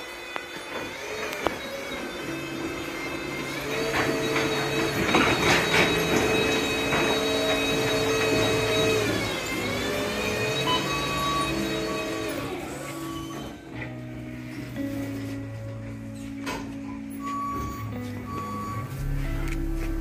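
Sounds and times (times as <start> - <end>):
electric motor whine: 0.0 - 14.8
rattling and knocks: 3.0 - 9.6.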